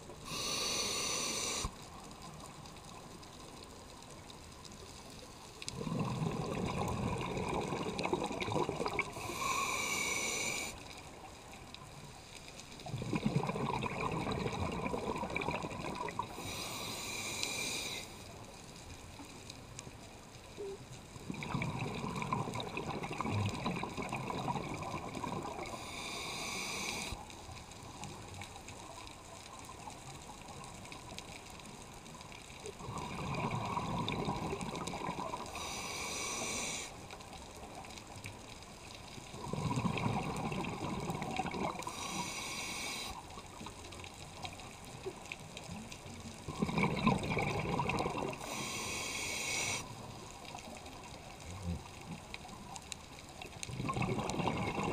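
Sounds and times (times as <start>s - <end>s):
regulator inhalation hiss: 0.2s - 1.8s, 9.2s - 10.8s, 16.3s - 18.3s, 25.7s - 27.2s, 35.5s - 37.0s, 41.8s - 43.2s, 48.4s - 49.9s
exhaled bubbles rushing: 5.7s - 9.3s, 12.8s - 16.4s, 21.2s - 25.8s, 32.8s - 35.5s, 39.3s - 41.9s, 46.4s - 48.5s, 53.7s - 54.9s.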